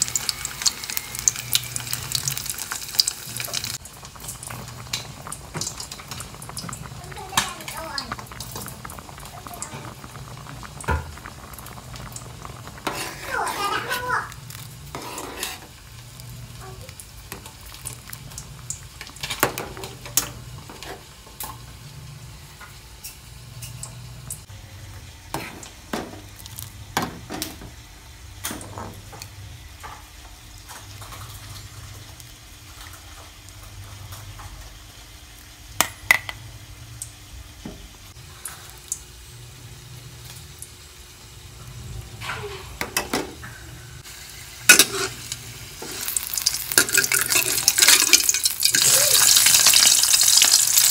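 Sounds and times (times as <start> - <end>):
metal ladle scraping a pot: 12.8 - 14.0, 14.9 - 15.7, 44.7 - 46.1.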